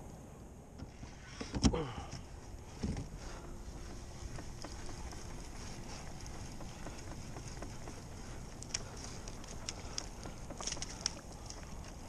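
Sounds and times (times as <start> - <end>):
faint steady hum: 0.0 - 12.0
light ticks and knocks: 3.8 - 12.0.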